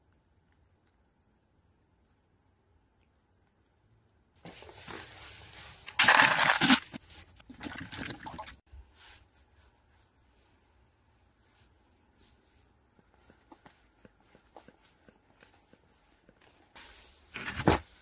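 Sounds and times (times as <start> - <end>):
plastic bag rustling: 4.4 - 7.4.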